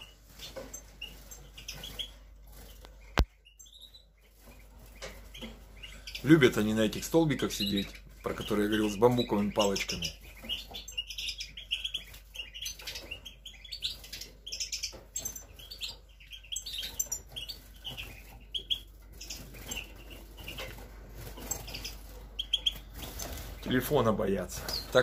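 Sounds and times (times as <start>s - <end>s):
birds chirping: 0.0s - 25.0s
birds hopping on perches: 0.0s - 25.0s
wing flutters: 16.8s - 25.0s.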